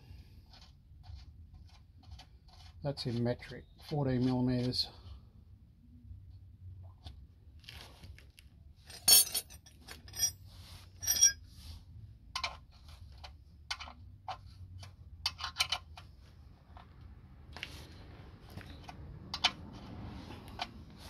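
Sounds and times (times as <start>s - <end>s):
metal spanners clinking: 8.9s - 10.4s, 11.0s - 11.4s.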